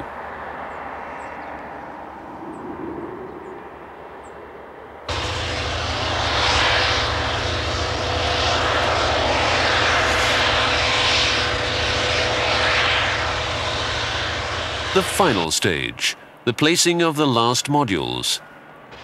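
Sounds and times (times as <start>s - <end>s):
thin steady whine: 5.0s - 19.0s
truck diesel engine running: 5.1s - 15.9s.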